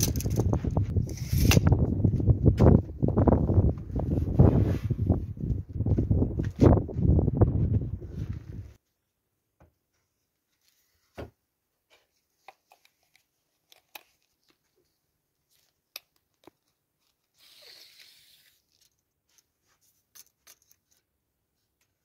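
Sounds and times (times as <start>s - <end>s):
tape measure blade sliding: 1.0s - 1.7s, 17.4s - 18.7s.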